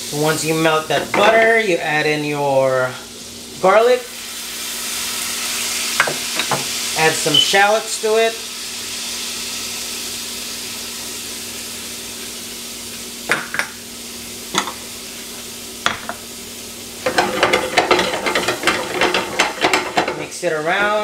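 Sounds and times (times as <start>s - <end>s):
garlic sizzling in butter: 0.0s - 21.0s
stirring scraping in a pan: 17.0s - 21.0s.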